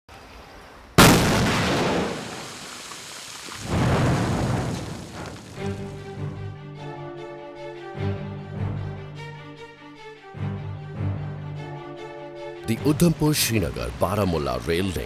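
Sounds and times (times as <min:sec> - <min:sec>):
rock blasting boom: 0:01.0 - 0:06.0
background music: 0:05.6 - 0:15.0.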